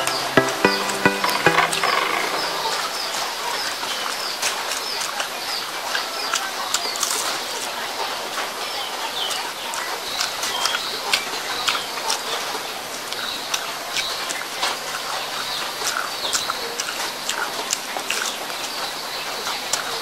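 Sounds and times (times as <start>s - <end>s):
chewing with wet mouth clicks: 15.8s - 18.3s.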